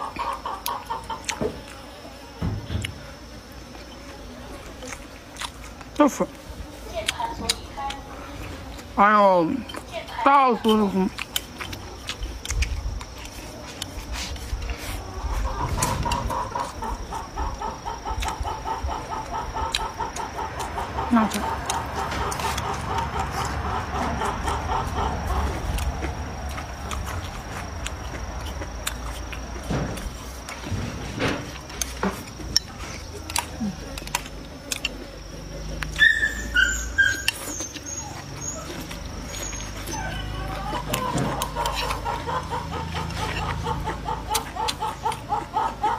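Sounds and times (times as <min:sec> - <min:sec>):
hen clucking: 0:00.0 - 0:01.8, 0:14.2 - 0:45.9
chewing: 0:00.0 - 0:02.2, 0:02.8 - 0:45.9
animal high-pitched calls: 0:35.8 - 0:45.9.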